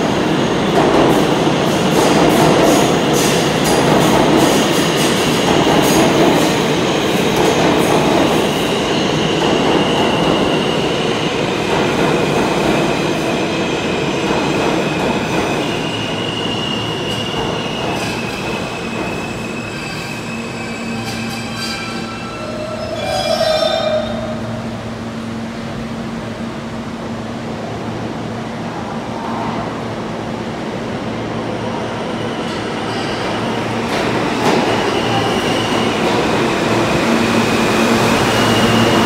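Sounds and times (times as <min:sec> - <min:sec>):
subway train wheels rumbling: 0:00.0 - 0:39.0
high wheel squeals: 0:15.9 - 0:24.3.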